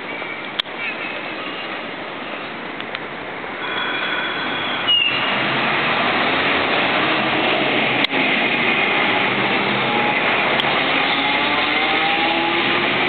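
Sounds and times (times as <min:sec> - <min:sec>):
streetcar wheels rumbling on rails: 0:00.0 - 0:13.0
faint whine: 0:03.6 - 0:04.9.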